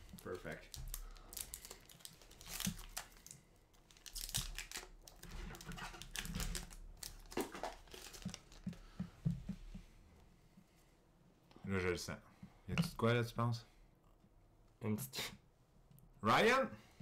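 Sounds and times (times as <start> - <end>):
card wrapper crinkling and tearing: 0.0 - 8.6.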